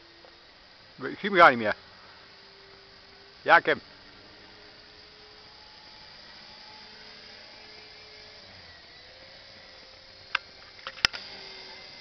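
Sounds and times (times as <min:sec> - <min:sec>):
distant rc helicopter hum: 0:00.0 - 0:12.0
sharp clicks: 0:10.3 - 0:11.4.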